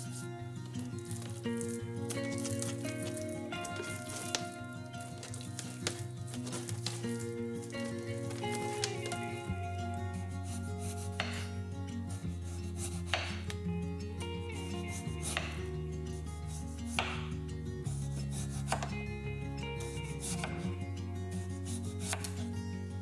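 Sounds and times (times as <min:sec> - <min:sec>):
knife slicing potato on wooden board: 0:10.5 - 0:11.5, 0:12.6 - 0:13.6, 0:15.2 - 0:15.7, 0:16.9 - 0:17.3, 0:18.1 - 0:19.0, 0:20.0 - 0:20.6, 0:21.6 - 0:22.5.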